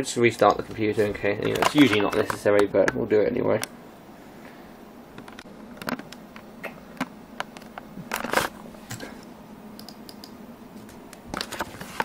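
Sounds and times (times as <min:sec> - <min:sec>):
faint steady hum: 0:00.0 - 0:12.0
keyboard typing: 0:09.8 - 0:10.4.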